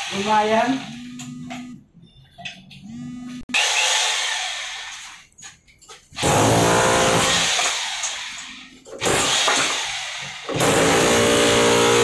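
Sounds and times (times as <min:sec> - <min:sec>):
hammer drill chiselling: 0:03.5 - 0:05.2, 0:06.2 - 0:12.0.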